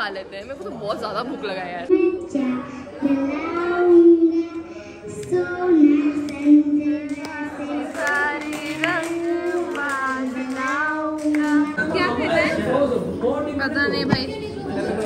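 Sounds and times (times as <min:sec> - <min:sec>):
girl singing into a microphone: 0:01.9 - 0:11.8.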